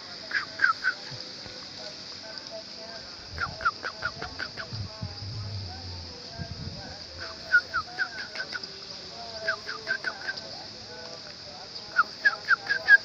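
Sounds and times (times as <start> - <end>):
steady high hiss: 0.0 - 13.0
bird calling quick slurred notes: 0.3 - 1.2, 3.3 - 6.2.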